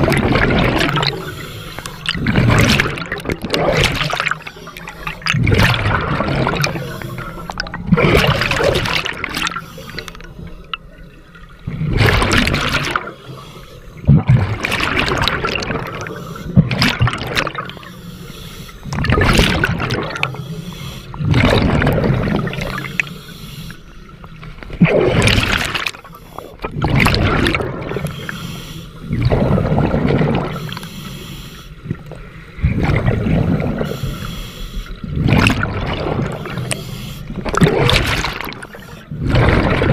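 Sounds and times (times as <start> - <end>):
exhaust bubbles gurgling: 0.0 - 10.1, 11.0 - 13.2, 14.0 - 17.9, 18.8 - 20.4, 21.1 - 23.1, 24.6 - 28.3, 29.1 - 30.8, 31.8 - 34.2, 35.0 - 39.9
hissing regulator breaths: 1.0 - 2.1, 9.4 - 10.7, 13.0 - 14.0, 16.0 - 16.6, 17.6 - 18.9, 20.3 - 21.2, 22.7 - 24.2, 27.9 - 29.2, 30.5 - 31.9, 33.8 - 35.1, 36.3 - 37.4.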